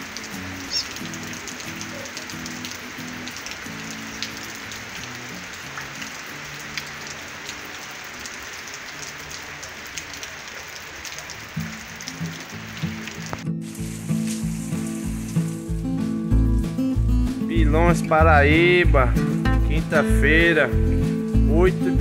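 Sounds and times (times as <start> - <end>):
heavy rain on pavement: 0.0 - 15.9.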